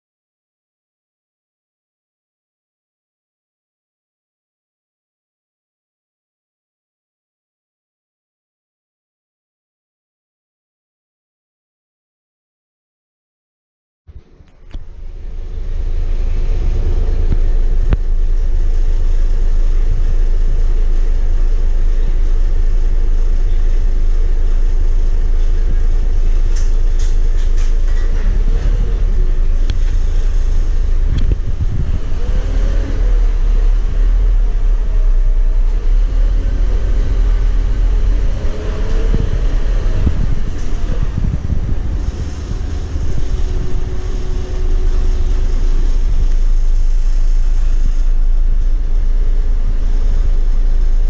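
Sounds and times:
bus diesel engine: 0:14.1 - 0:51.0.

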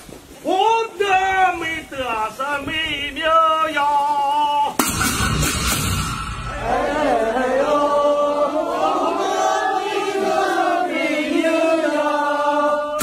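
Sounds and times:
person singing chant-like notes: 0:06.5 - 0:13.0.

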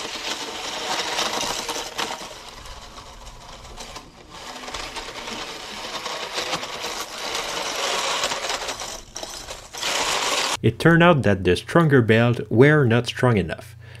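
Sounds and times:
toy tank motor buzzing: 0:00.0 - 0:10.6.

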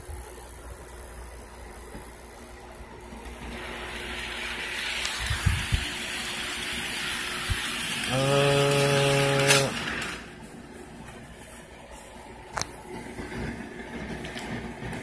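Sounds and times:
model train motor and wheels: 0:03.1 - 0:10.5, 0:12.5 - 0:15.0.

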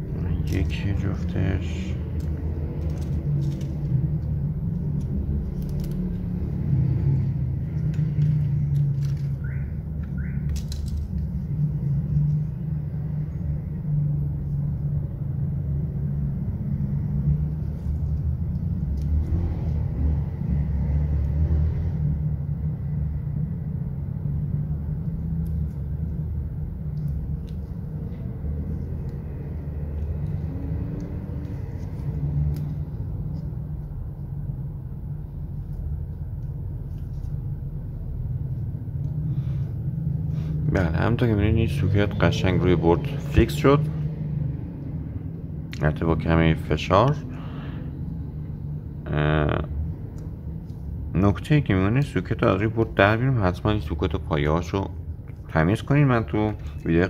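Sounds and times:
low mechanical hum: 0:00.0 - 0:57.0
small parts clicking: 0:02.0 - 0:06.3, 0:07.7 - 0:11.4.

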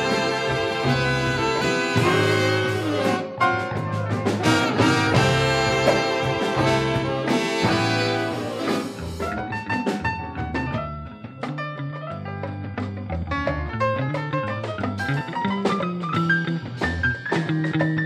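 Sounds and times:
saxophone: 0:00.0 - 0:09.2
brass: 0:00.0 - 0:09.4
jazz music: 0:00.0 - 0:18.0
steady bass line: 0:00.0 - 0:18.0.

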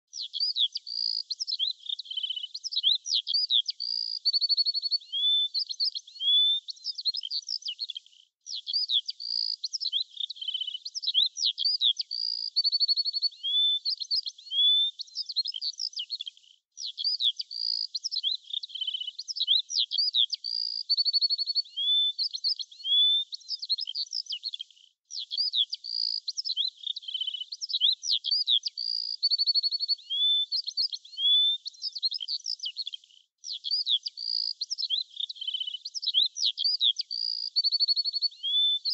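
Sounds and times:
songbird chirps and trills: 0:00.1 - 0:38.9.

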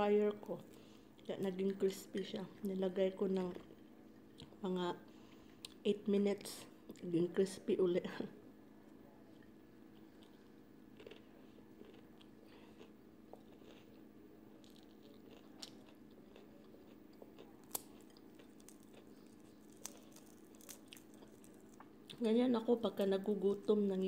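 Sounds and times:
steady low hum: 0:00.0 - 0:24.0
chewing crispy fried chicken: 0:08.8 - 0:22.2.

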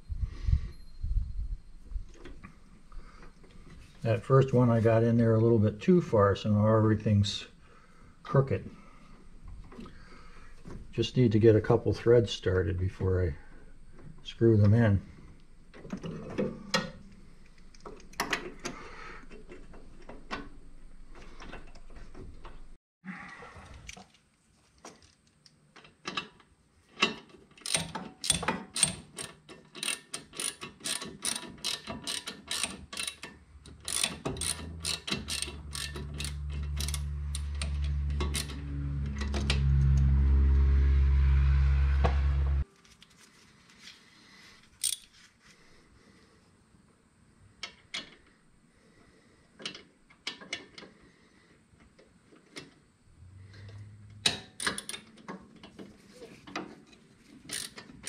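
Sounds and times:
socket ratchet clicking: 0:27.6 - 0:38.6, 0:44.8 - 0:45.1, 0:57.5 - 0:57.9
loud low hum rising in pitch: 0:34.5 - 0:42.6, 0:53.1 - 0:54.3.

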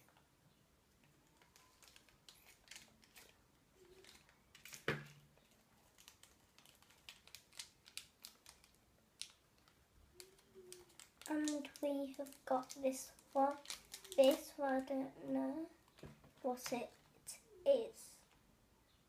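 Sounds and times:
plastic packet crinkling: 0:01.0 - 0:15.0.

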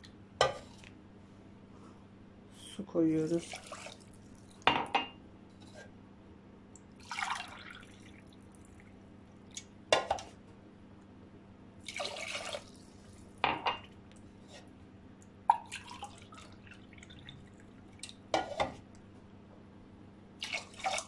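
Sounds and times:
water splashing into pot: 0:03.4 - 0:04.6, 0:07.0 - 0:08.9, 0:11.8 - 0:12.8, 0:15.5 - 0:18.5, 0:20.4 - 0:21.0.

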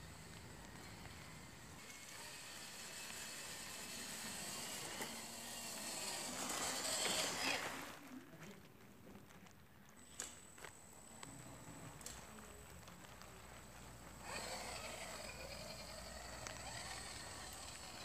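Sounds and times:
toy car motor whining: 0:00.0 - 0:07.9, 0:13.6 - 0:18.0
tyres pushing through grass: 0:03.6 - 0:08.1, 0:12.1 - 0:18.0.

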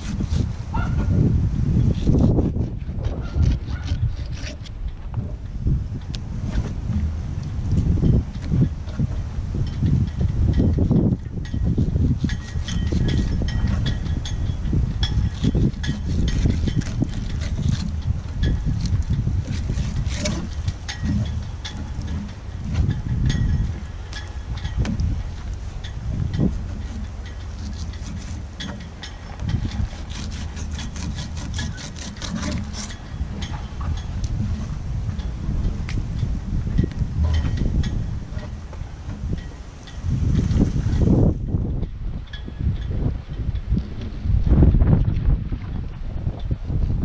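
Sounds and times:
wind buffeting microphone: 0:00.0 - 0:47.0
knife scraping on cutting board: 0:01.9 - 0:04.8.

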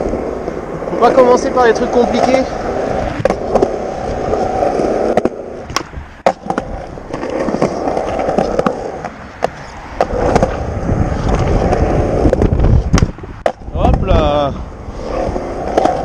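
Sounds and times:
skateboard clacks: 0:00.0 - 0:14.2, 0:15.1 - 0:16.0
skateboard wheels rolling: 0:00.0 - 0:16.0.

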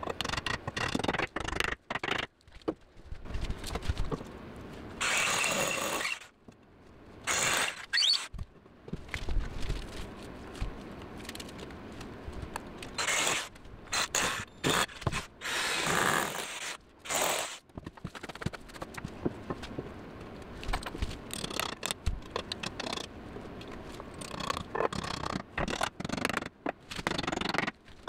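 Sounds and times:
cordless drill driving screws: 0:05.0 - 0:06.3, 0:13.0 - 0:17.6.

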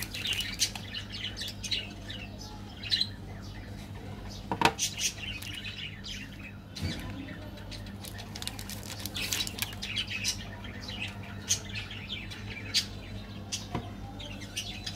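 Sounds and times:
plastic wrapper crinkling: 0:00.0 - 0:00.9, 0:07.8 - 0:10.0
birds chirping: 0:00.0 - 0:14.9.

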